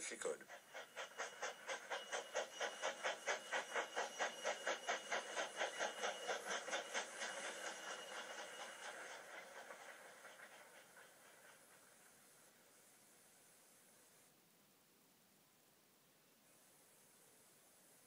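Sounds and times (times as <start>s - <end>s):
steam engine puffing: 0.0s - 12.5s.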